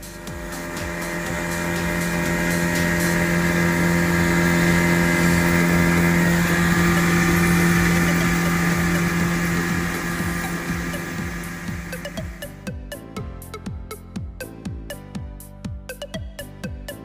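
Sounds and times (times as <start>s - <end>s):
outboard motor droning: 0.0s - 13.1s.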